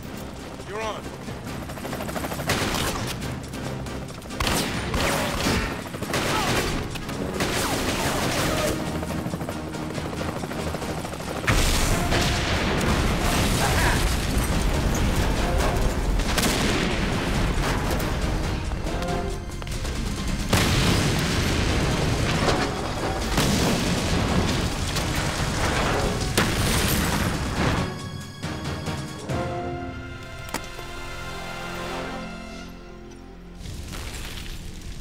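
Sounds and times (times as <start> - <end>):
film music: 0.0 - 35.0
gunshots: 4.3 - 9.0, 19.6 - 27.8.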